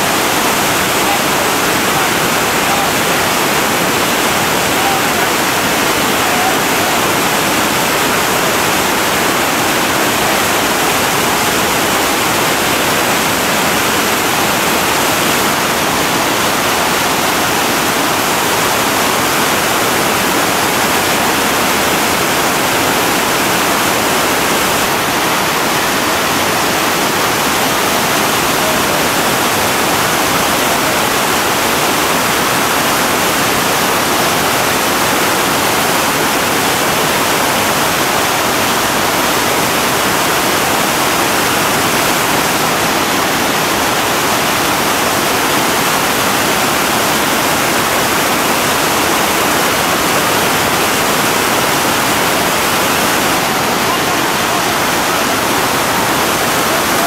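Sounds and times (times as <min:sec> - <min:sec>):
churning river rapids: 0:00.0 - 0:57.0.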